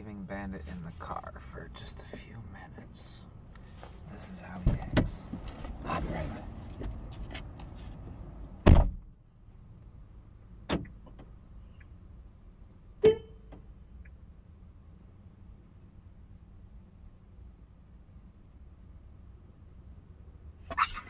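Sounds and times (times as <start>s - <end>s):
rustling inside car: 3.6s - 8.2s
car door thump: 8.6s - 9.0s
brief tone: 13.0s - 13.4s.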